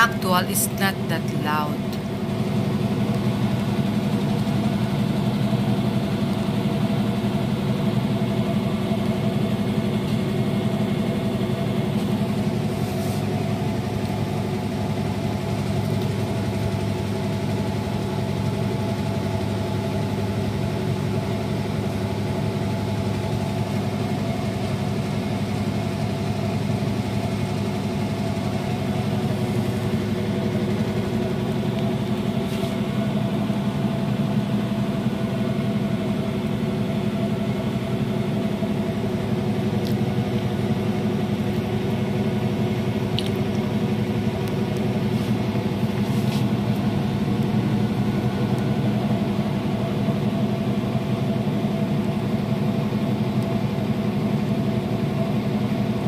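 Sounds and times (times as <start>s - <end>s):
washing machine spinning: 0.0s - 56.0s.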